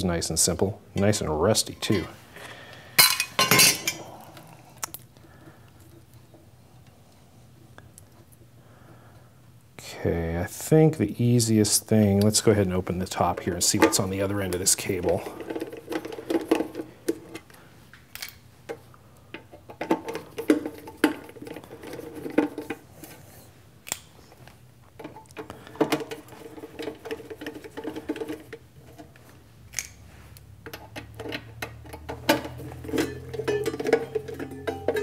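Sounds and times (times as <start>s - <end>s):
metal cover being handled: 1.0s - 2.2s, 3.0s - 4.0s, 30.7s - 35.0s.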